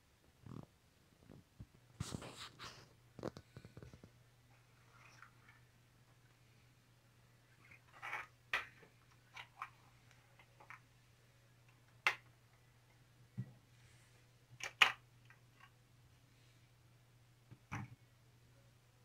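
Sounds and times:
faint low hum: 0.0 - 19.0
plastic toy clicks and knocks: 14.6 - 15.7.

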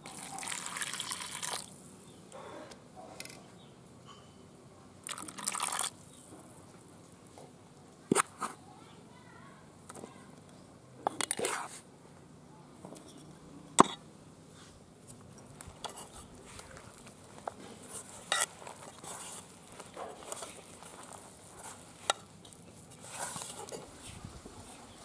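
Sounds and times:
dough stirring and scraping in a bowl: 15.5 - 25.0.

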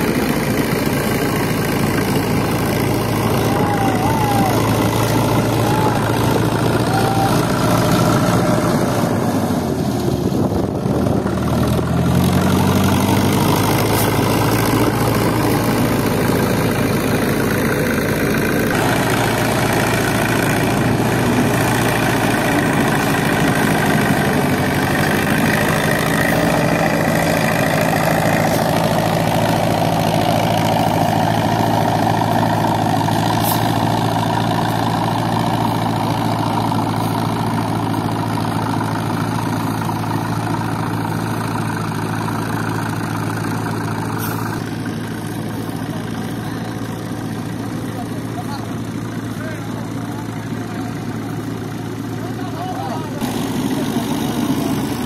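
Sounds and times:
diesel engines running: 0.0 - 55.0.

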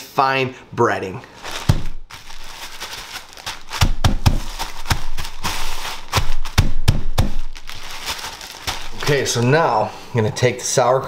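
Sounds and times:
plastic bag crinkling: 1.3 - 9.8
chips crunching: 1.4 - 6.6, 7.4 - 9.6
hands thumping bag: 1.4 - 9.5.

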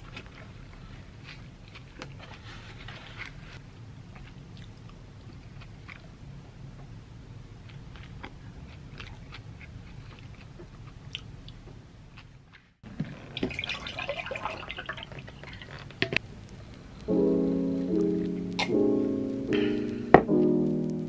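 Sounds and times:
chewing food: 0.0 - 3.4, 4.1 - 6.9, 7.6 - 13.4
water poured into a mug: 13.2 - 16.0.

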